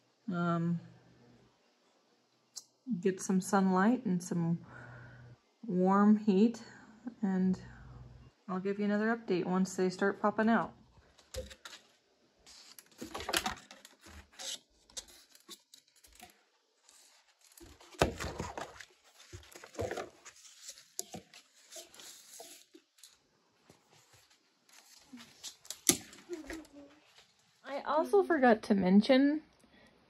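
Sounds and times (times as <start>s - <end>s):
plastic dome crinkling and clicking: 11.0s - 27.4s.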